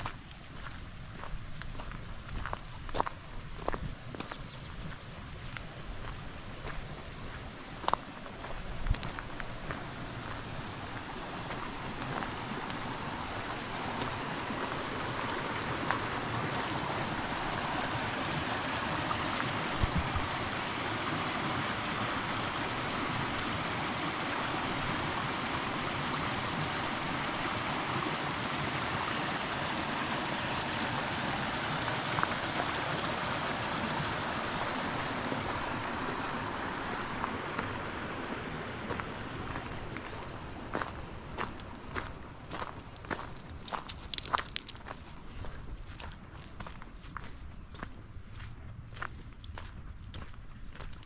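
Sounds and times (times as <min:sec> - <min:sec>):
stream running over rocks: 0:00.0 - 0:51.0.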